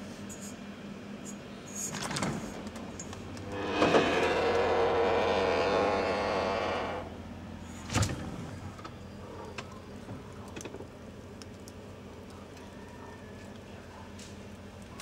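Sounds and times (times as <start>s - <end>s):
fridge low hum: 0.0s - 15.0s
fridge loud rough buzz: 3.2s - 7.4s.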